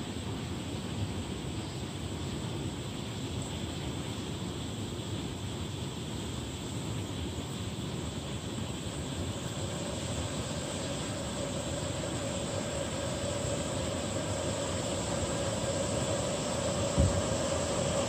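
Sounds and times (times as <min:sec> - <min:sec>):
humming tone of heating pot: 0:00.0 - 0:18.0
stove flame hissing: 0:06.3 - 0:18.0
low thump: 0:17.0 - 0:17.3.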